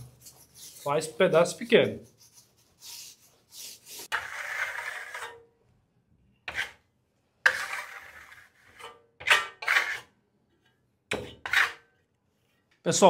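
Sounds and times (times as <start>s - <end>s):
metal trowel scraping a wall: 0.0s - 5.5s, 6.4s - 10.2s, 11.1s - 11.9s.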